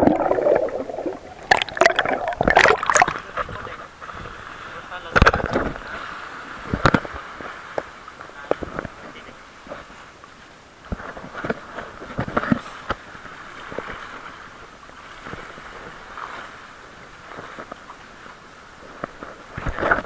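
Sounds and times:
seawater splashing over rocks: 0:00.0 - 0:10.0.

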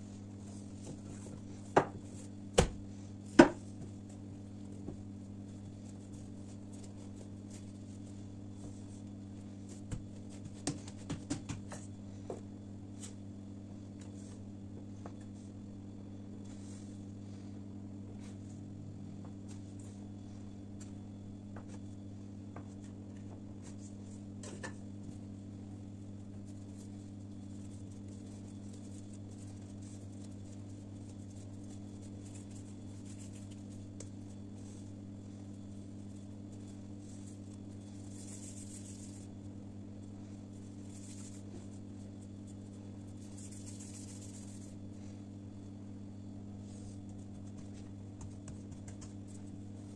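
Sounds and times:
dough rubbing between palms: 0:00.0 - 0:12.0, 0:25.0 - 0:45.2, 0:46.2 - 0:49.9
steady low hum: 0:00.0 - 0:49.9.

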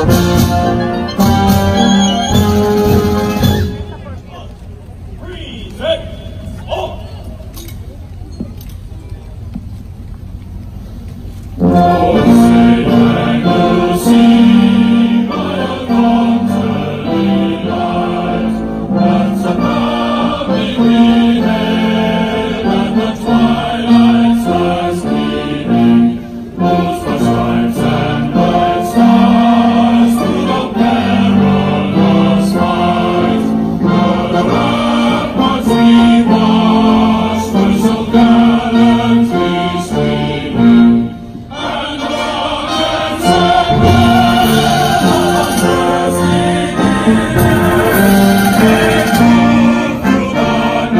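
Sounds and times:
military brass band playing: 0:00.0 - 0:05.0, 0:11.4 - 0:50.9
choir singing: 0:11.6 - 0:50.9.

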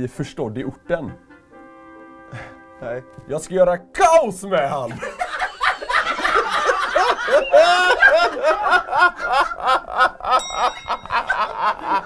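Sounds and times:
man laughing hard: 0:04.9 - 0:12.0.

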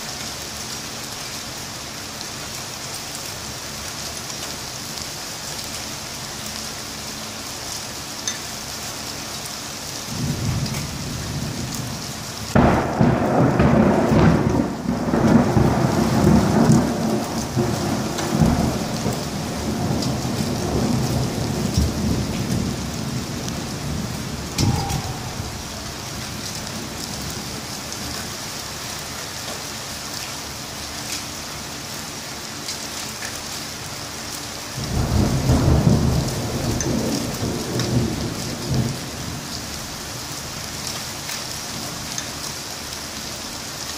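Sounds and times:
steady rain falling: 0:00.0 - 0:43.9
thunder crack and rumble: 0:10.1 - 0:28.3, 0:34.8 - 0:39.7.

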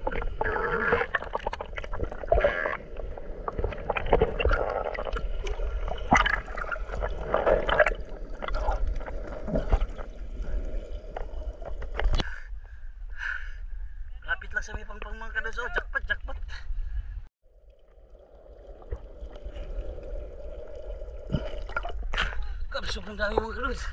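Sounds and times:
water gurgling underwater: 0:00.0 - 0:12.2, 0:17.6 - 0:22.4.

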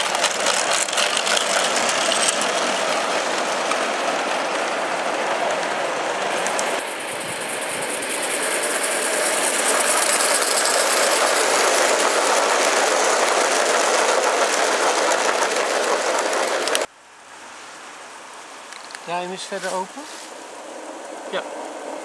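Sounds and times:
model coaches passing: 0:00.0 - 0:16.9
model train wheels clattering: 0:00.0 - 0:16.9.

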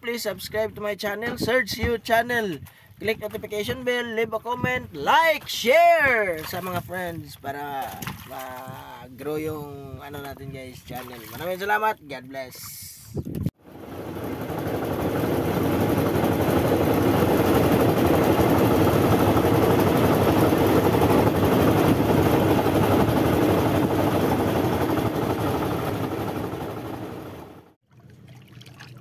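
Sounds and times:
boat engine running: 0:13.7 - 0:29.0.

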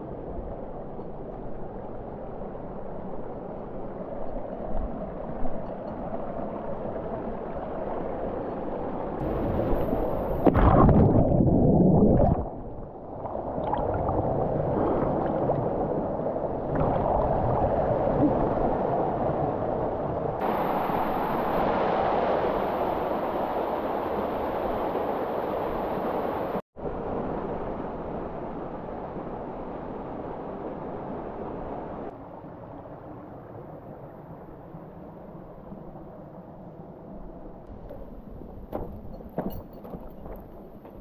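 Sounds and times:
creek water running and gurgling: 0:00.1 - 0:19.2.

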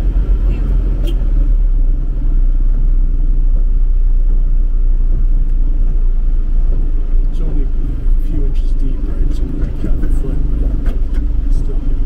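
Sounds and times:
truck cab rumble: 0:00.0 - 0:12.0.

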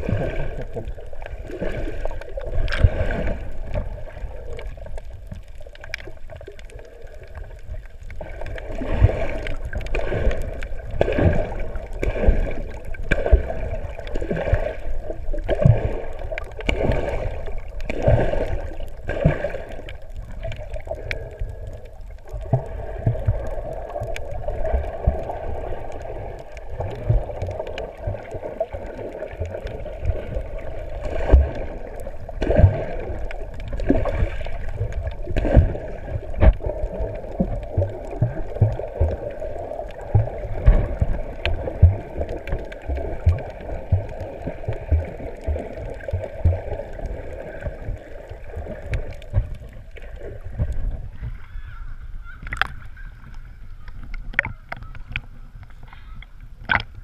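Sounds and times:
muffled underwater gurgling: 0:00.0 - 0:57.0.

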